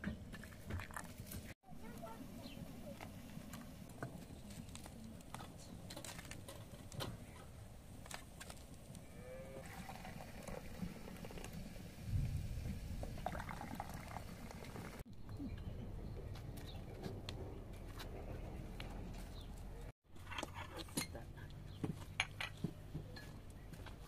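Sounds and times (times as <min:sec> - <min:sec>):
tea pouring into glass cups: 0:09.6 - 0:11.8, 0:13.0 - 0:15.0.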